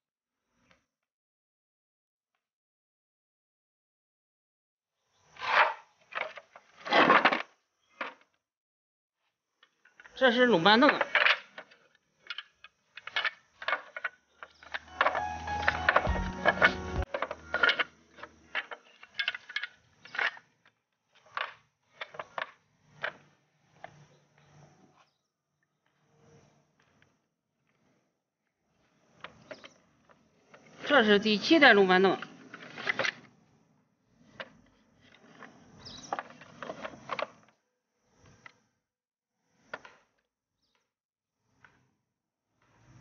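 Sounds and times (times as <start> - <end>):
wooden parts clacking and knocking: 10.8 - 17.9, 18.5 - 20.4.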